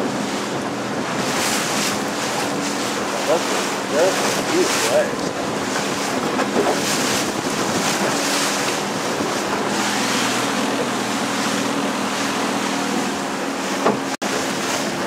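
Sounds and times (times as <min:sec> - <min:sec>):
boat motor running: 0:00.0 - 0:15.0
water rushing past hull: 0:00.0 - 0:15.0
wind buffeting microphone: 0:00.0 - 0:15.0.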